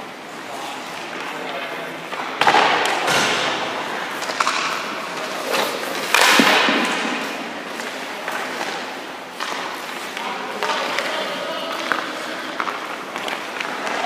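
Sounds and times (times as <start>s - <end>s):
skates scraping ice: 3.8s - 14.0s.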